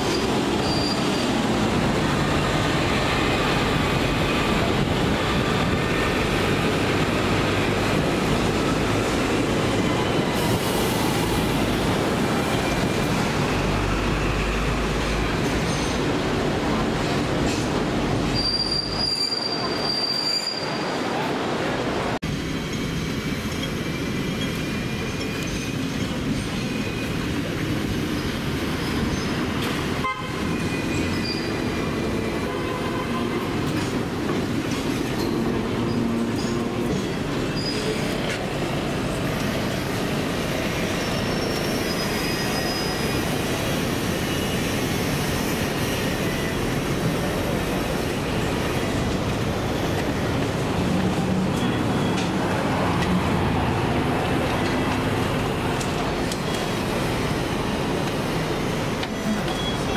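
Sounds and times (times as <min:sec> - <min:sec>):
tram wheels rumbling on rails: 0:00.0 - 0:59.9
faint high squeals: 0:18.4 - 0:21.0, 0:40.9 - 0:43.4.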